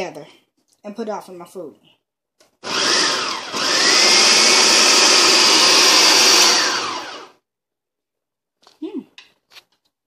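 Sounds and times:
food processor motor chopping: 2.6 - 7.4.

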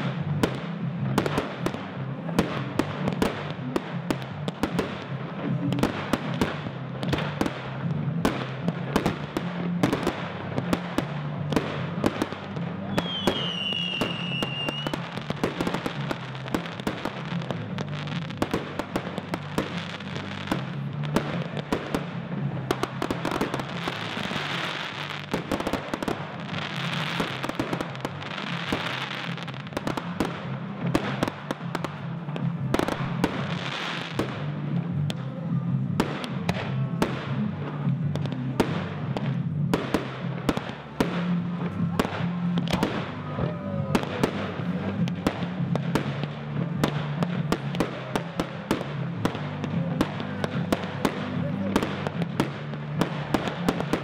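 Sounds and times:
fireworks bangs and crackles: 0.0 - 54.0
firework whistle: 12.9 - 16.3.

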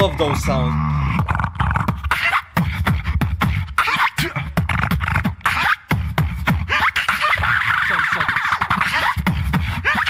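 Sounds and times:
human beatboxing: 0.0 - 10.0.

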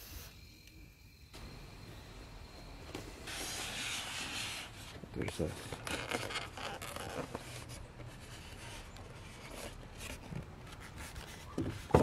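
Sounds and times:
styrofoam scraping and rubbing: 3.2 - 12.0.

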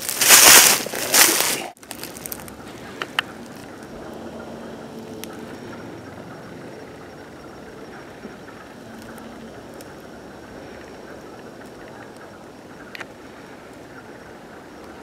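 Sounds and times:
footsteps crunching dry leaves: 0.0 - 5.5
steady outdoor hiss: 0.0 - 15.0
faint clicks: 1.8 - 4.2, 10.7 - 13.9.

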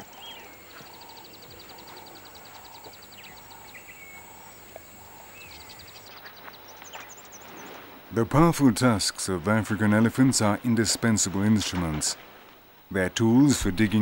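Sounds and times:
whistled bird calls: 0.0 - 4.4
high ticking insect trill: 0.0 - 7.6.

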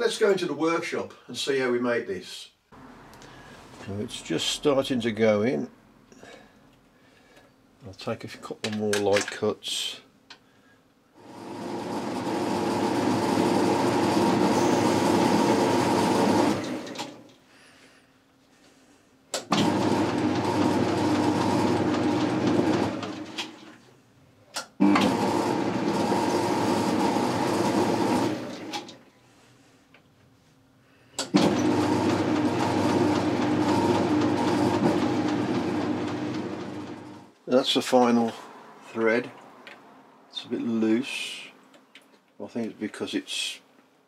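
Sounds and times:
lathe running: 11.2 - 17.2, 19.5 - 23.7, 24.8 - 28.9, 31.3 - 37.3.

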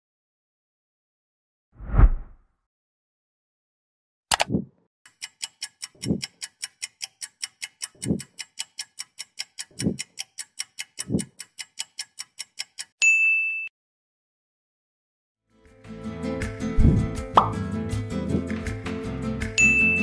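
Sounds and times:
clock-like ticking: 4.3 - 13.0.

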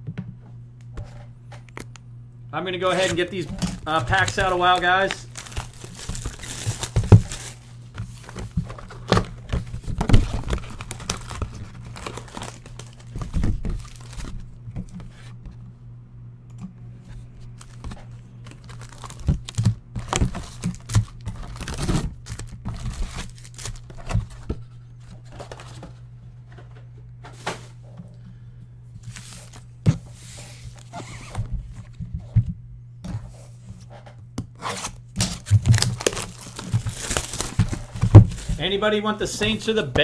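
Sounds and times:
steady low hum: 0.0 - 40.0
foil packs crinkling: 2.8 - 14.6, 17.5 - 24.5, 29.0 - 29.7, 34.9 - 40.0
cardboard and wrapping tearing: 2.9 - 14.4, 18.5 - 24.2, 34.6 - 38.6.

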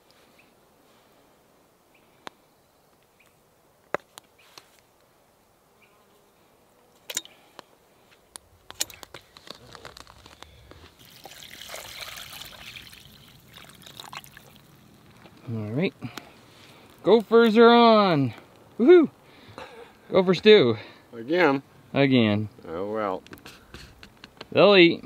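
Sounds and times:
water pouring into pot: 11.0 - 14.9.

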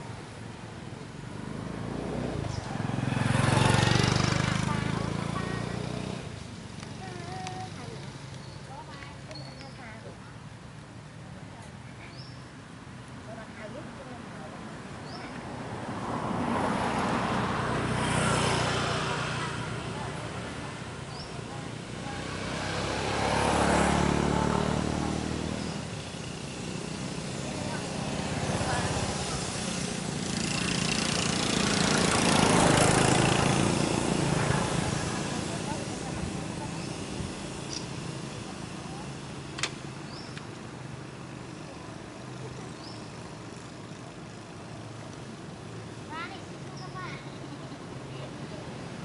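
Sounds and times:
vehicle engine passing: 1.1 - 8.2, 15.0 - 45.1.

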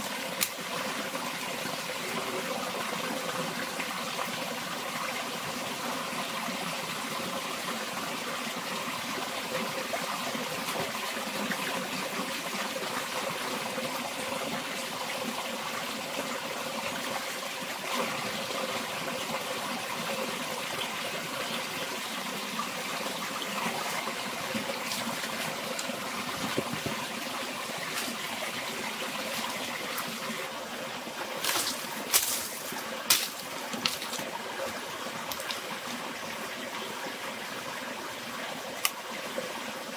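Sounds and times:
stream trickling and splashing: 0.0 - 39.9.

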